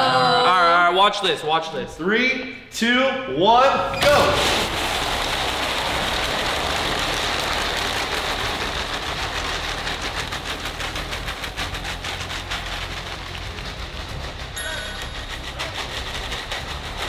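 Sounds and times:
marbles rattling in plastic bottles: 4.4 - 17.0.

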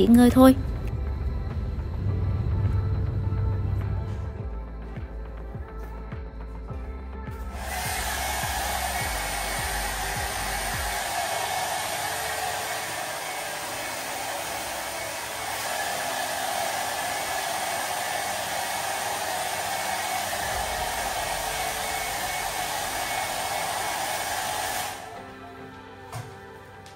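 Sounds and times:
hair dryer blowing: 7.5 - 25.4.

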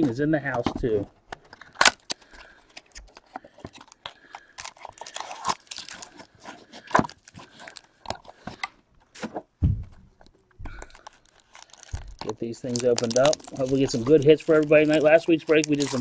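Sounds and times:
foil packaging crinkling: 1.5 - 8.4, 10.7 - 16.0.

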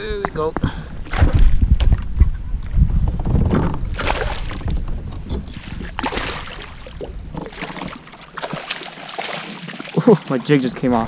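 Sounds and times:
fish splashing in water: 3.9 - 10.6.

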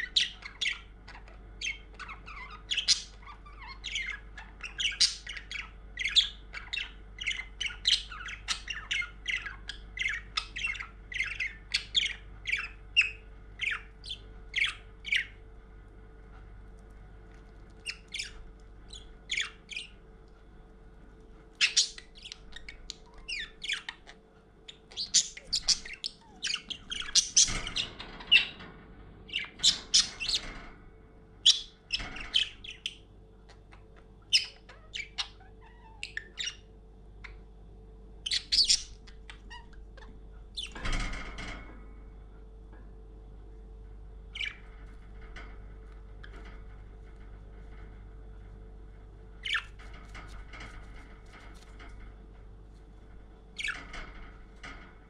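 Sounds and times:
faint steady hum: 0.0 - 55.0
budgerigar chattering: 21.6 - 28.6, 38.3 - 39.8.

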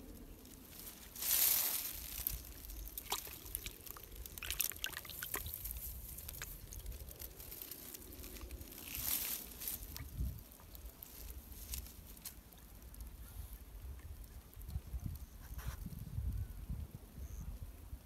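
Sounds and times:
water splashing in plastic bucket: 2.9 - 6.9.

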